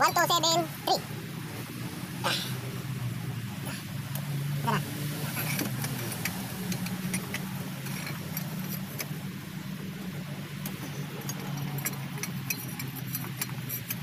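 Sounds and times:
steady low hum: 0.0 - 14.0
hand tools clicking on metal: 10.6 - 14.0.

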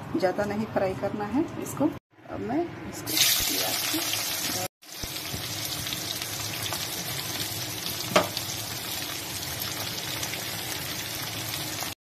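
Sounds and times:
onions sizzling in hot oil: 3.1 - 12.0.

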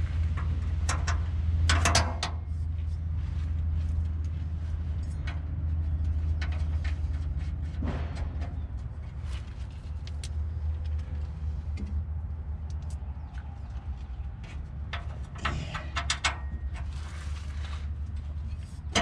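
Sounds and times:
metal scrape: 15.4 - 19.0.

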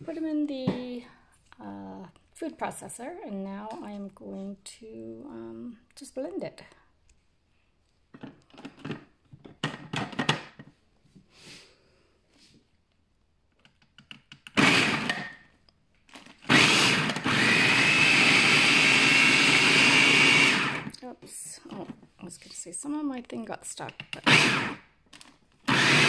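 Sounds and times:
food processor motor whining: 14.5 - 15.4, 16.2 - 21.0, 24.2 - 24.9, 25.6 - 26.0.

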